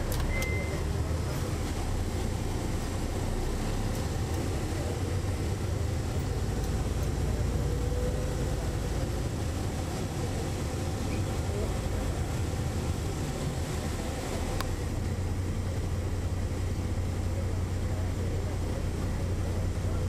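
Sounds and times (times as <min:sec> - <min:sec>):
bus engine rumbling: 0:00.0 - 0:20.0
short high beep: 0:00.2 - 0:00.8.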